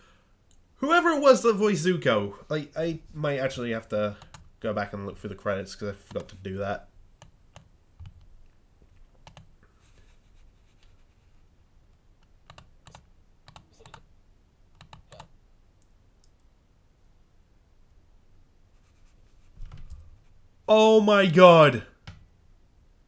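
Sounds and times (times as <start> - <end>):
computer keys clicking: 4.2 - 4.5, 9.2 - 9.5, 12.4 - 14.0, 14.8 - 16.5.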